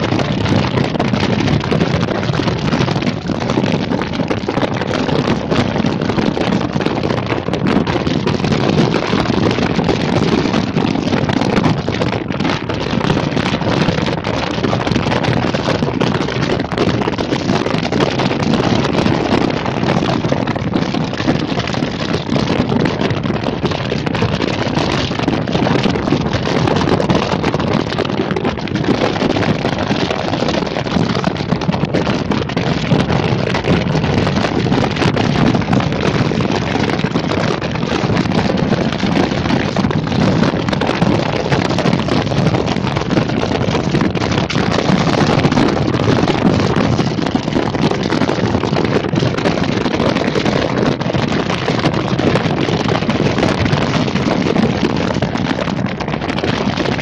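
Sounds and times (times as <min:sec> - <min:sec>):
wind on microphone: 0:00.0 - 0:57.0.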